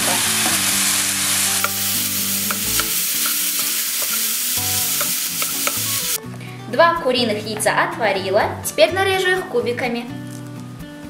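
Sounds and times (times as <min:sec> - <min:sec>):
mushrooms sizzling in a frying pan: 0:00.0 - 0:06.2.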